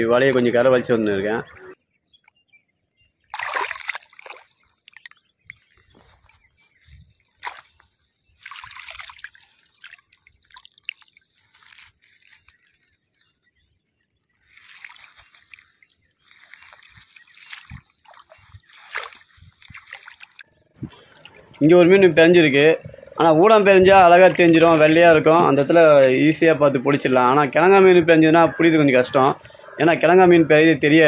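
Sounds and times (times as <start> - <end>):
water splashing and trickling: 3.1 - 26.4.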